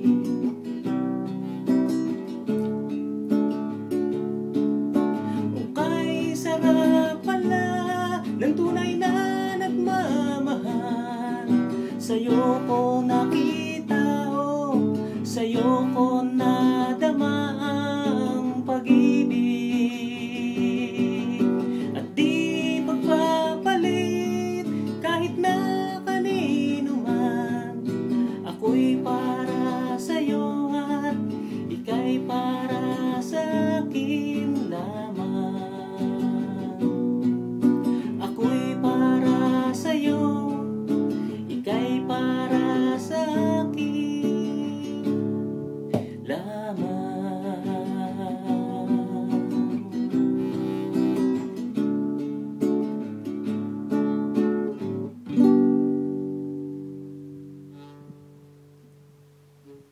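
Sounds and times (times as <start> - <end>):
classical guitar strummed: 0.0 - 59.9
man singing: 5.1 - 51.7.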